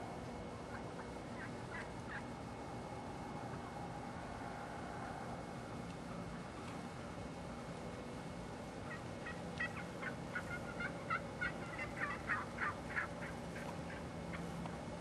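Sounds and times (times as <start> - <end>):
turkeys calling: 0.6 - 2.4, 8.8 - 14.7.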